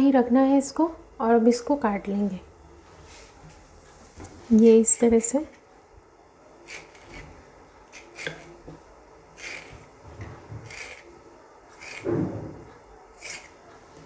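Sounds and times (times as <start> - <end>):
knife cutting dough on stone board: 6.6 - 8.6, 13.2 - 13.7.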